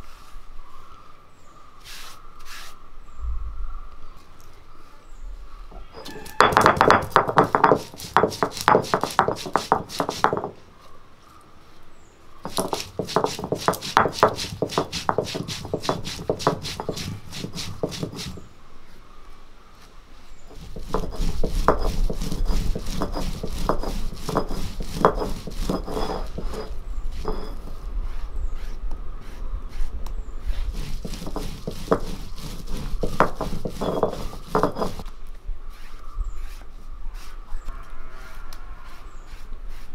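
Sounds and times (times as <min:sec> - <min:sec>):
stone roller grinding spices: 0:06.1 - 0:10.5, 0:12.4 - 0:18.5, 0:20.5 - 0:27.8, 0:30.5 - 0:35.1.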